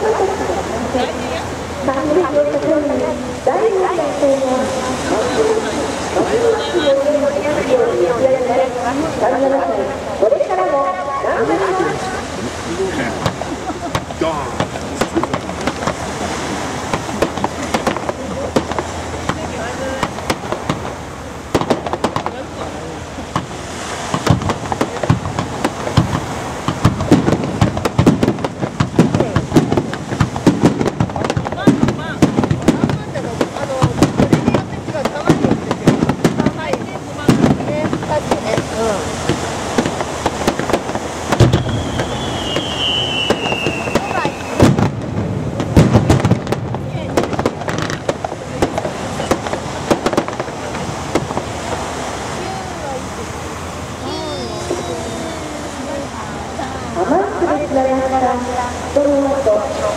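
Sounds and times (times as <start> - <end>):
fireworks bangs and crackles: 11.2 - 59.9
deep fireworks booms: 12.0 - 53.1.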